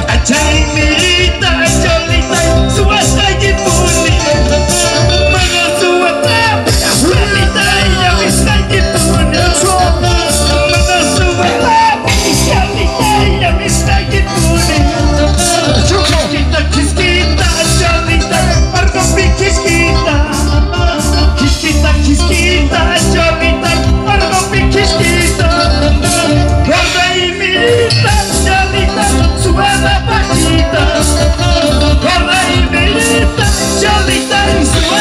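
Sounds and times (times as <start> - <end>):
bending melody line: 0.0 - 35.0
drum kit with cymbals: 0.0 - 35.0
electric guitar: 0.0 - 35.0
heavy bass: 0.0 - 35.0
live band music: 0.0 - 35.0.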